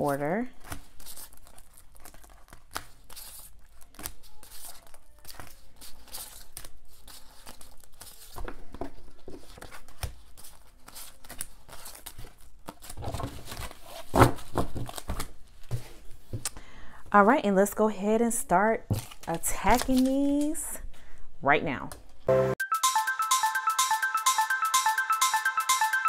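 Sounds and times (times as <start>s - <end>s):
plastic envelopes crinkling: 0.6s - 16.4s, 18.9s - 20.6s.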